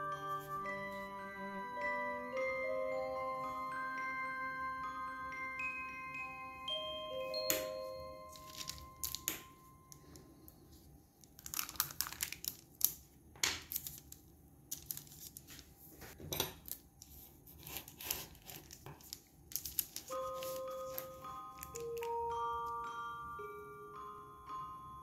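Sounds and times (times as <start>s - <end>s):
crinkling and tearing: 11.2s - 13.0s, 13.6s - 15.7s, 17.5s - 22.1s.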